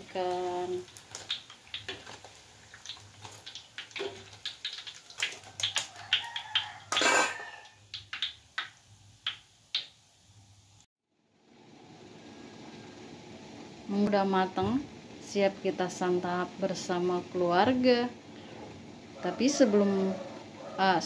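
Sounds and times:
strainer scraping a wok: 0:06.9 - 0:07.7.

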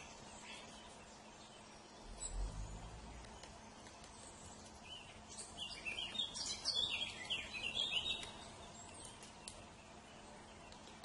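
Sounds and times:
birds chirping: 0:00.0 - 0:11.0
faint clicks: 0:10.6 - 0:11.0.

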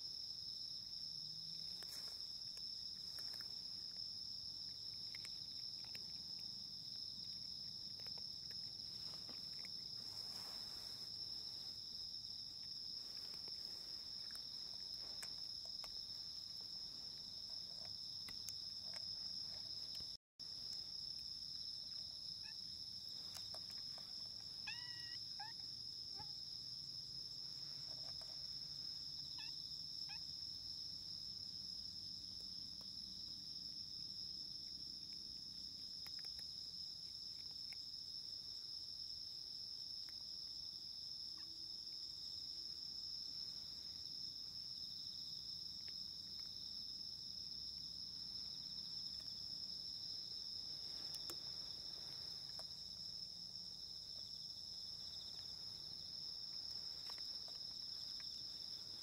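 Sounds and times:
insects chirring: 0:00.0 - 0:59.0
faint short chirping calls: 0:24.5 - 0:25.6.

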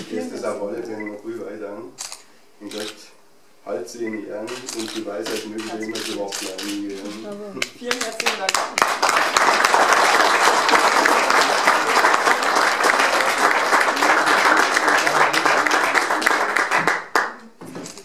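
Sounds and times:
audience applauding: 0:07.9 - 0:17.5.

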